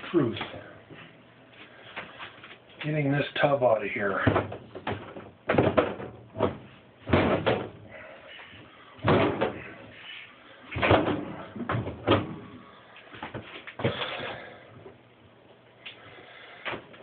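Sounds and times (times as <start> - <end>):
plastic tub knocking and thumping: 4.2 - 7.8, 9.0 - 9.7, 10.8 - 12.4.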